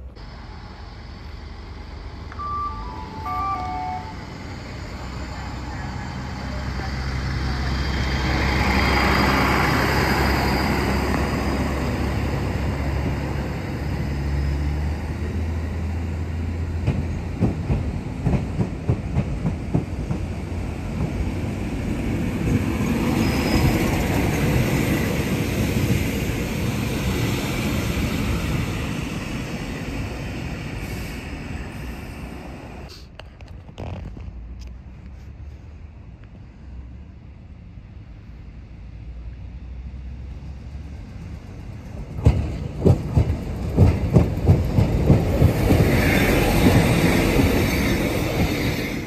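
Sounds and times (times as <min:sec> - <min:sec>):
diesel train engine: 0:00.0 - 0:33.6, 0:34.5 - 0:49.0
train rolling past: 0:00.0 - 0:33.6, 0:35.0 - 0:49.0
wheels clacking on rail joints: 0:41.6 - 0:48.8.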